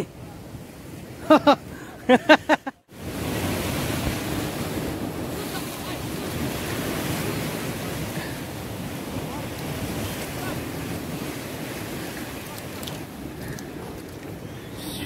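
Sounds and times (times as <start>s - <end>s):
surf breaking on rocks: 2.9s - 14.5s.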